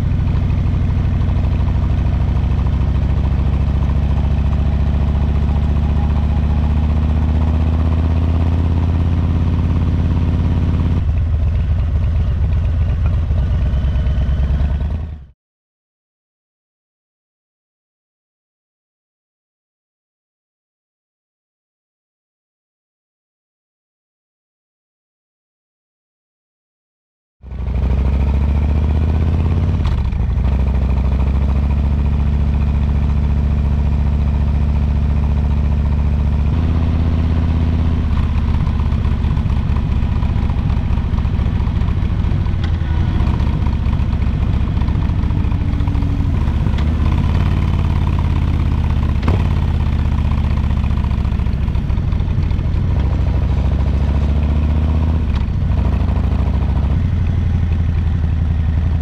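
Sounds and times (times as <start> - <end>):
motorcycle engine running: 0.0 - 15.4, 27.4 - 59.0.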